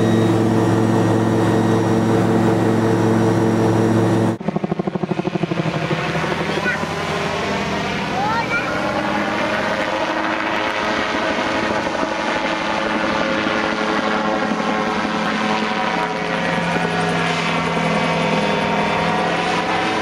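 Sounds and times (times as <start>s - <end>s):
autogyro engine drone: 0.0s - 20.0s.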